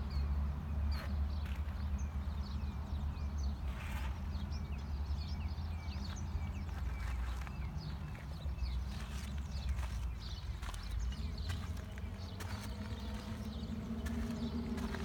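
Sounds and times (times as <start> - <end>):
small birds chirping: 0.0 - 15.0
scuff: 6.7 - 15.0
steady low rumble: 9.7 - 15.0.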